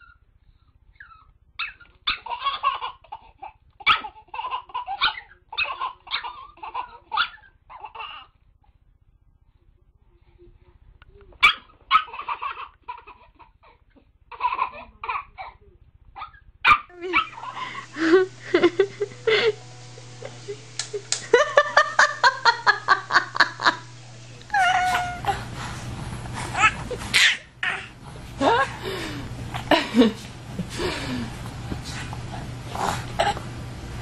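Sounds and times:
babies laughing: 2.1 - 8.3, 12.1 - 15.6, 16.9 - 31.4
baby squealing laugh: 2.1 - 8.3, 12.0 - 13.6, 24.5 - 25.4, 26.5 - 27.9.

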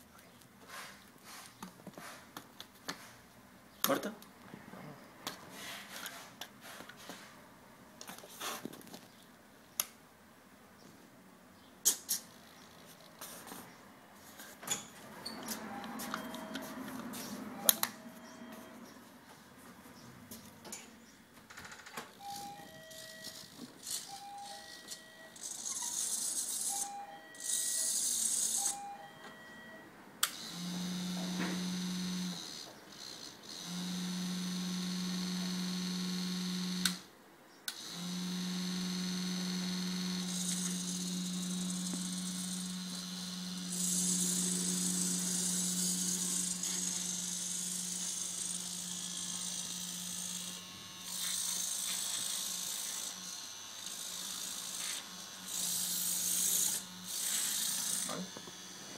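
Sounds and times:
two-note electronic beeps: 17.5 - 18.9
small motor and gears whirring: 21.6 - 29.0, 30.3 - 37.1, 37.7 - 58.9
low electric hum: 22.0 - 58.9.

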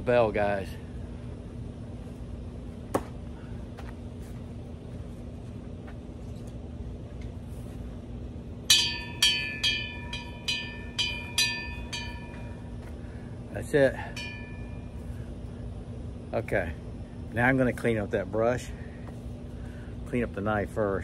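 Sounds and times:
hanging metal bell ringing: 8.7 - 12.9, 13.9 - 15.2.

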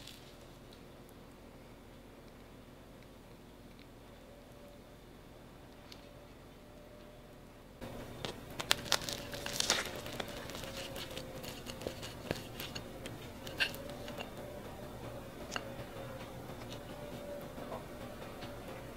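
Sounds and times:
pastry crackling and tearing: 0.0 - 1.2, 7.8 - 14.6.

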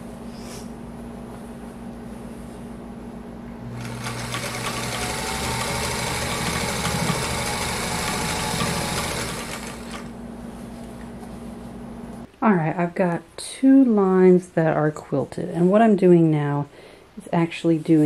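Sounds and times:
electric sewing machine running: 3.7 - 10.2.

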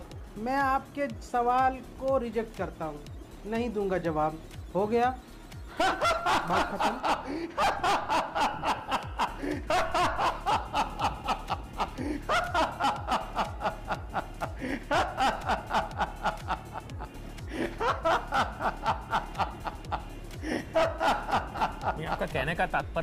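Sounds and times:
man laughing heartily: 5.7 - 22.4
man breathing: 14.6 - 14.9.

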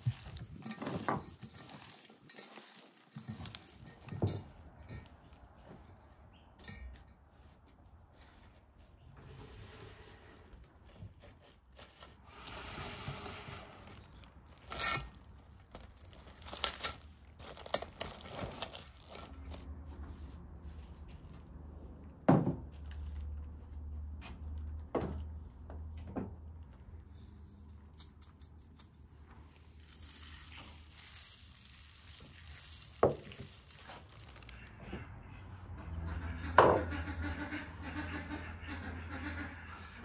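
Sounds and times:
hands handling raw meat in bowl: 0.0 - 5.1, 13.7 - 19.7, 29.8 - 34.7.

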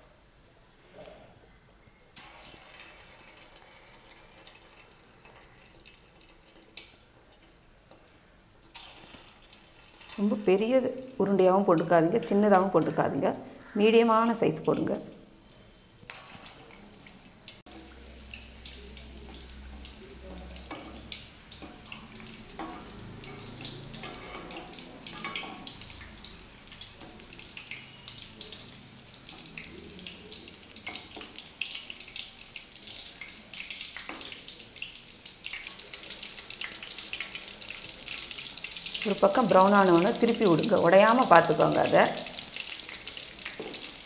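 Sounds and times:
fish deep-frying in oil: 2.1 - 44.0
spoon scraping pan: 20.6 - 26.2.

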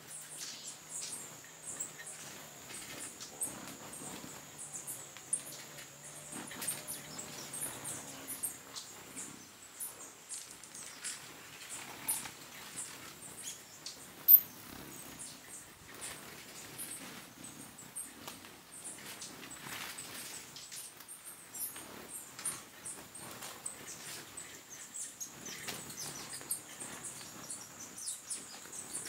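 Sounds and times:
hum of hovering wings: 0.0 - 29.0
hummingbird chips and squeaks: 0.2 - 9.3, 10.3 - 17.0.

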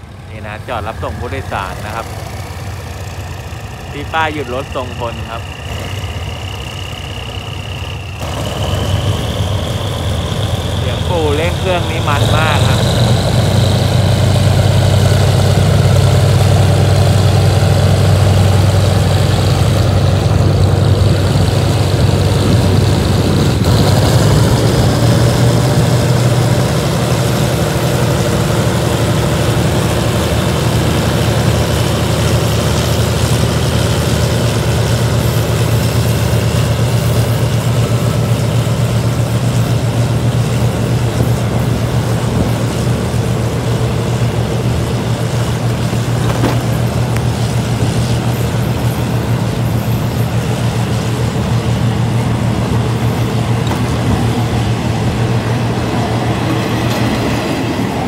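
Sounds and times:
locomotive engine drone: 0.0 - 58.0
train coaches rolling by: 0.0 - 58.0.

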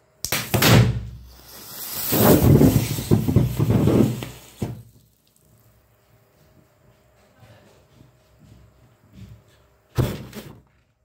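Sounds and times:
battery bursting: 0.2 - 5.0
hissing crackling jet of sparks: 1.2 - 5.5.

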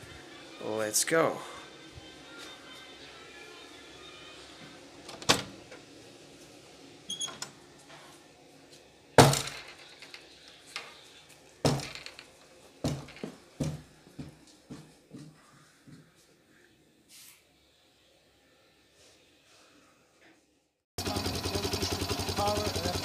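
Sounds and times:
door banging: 9.2 - 10.1, 11.6 - 12.2
irregular thuds: 11.6 - 12.0, 12.8 - 14.9
knock on wooden door: 11.7 - 12.0, 12.8 - 13.8.

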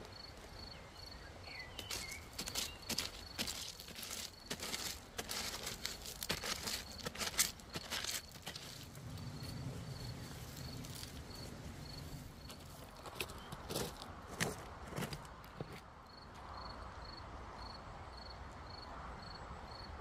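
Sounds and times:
insect chirping: 0.0 - 13.8
pebbles clattering and grinding: 1.8 - 15.8.

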